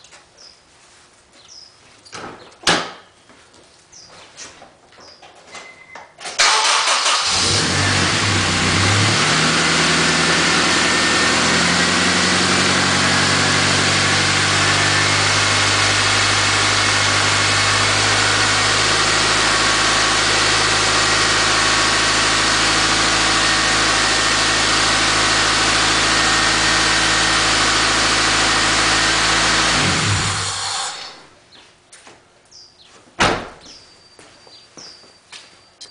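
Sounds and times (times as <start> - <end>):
car engine starting and idling: 6.3 - 31.3.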